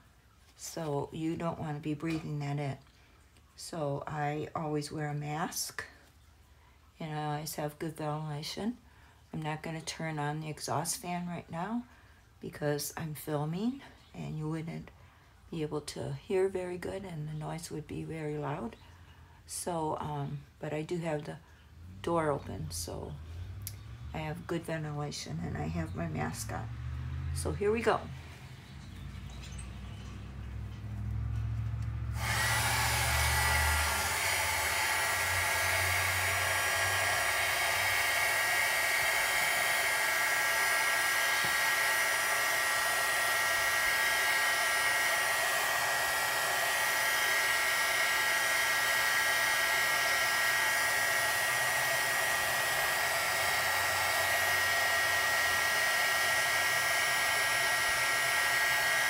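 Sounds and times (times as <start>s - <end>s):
heat gun fan whine: 30.1s - 59.0s
heat gun switch: 31.8s - 59.0s.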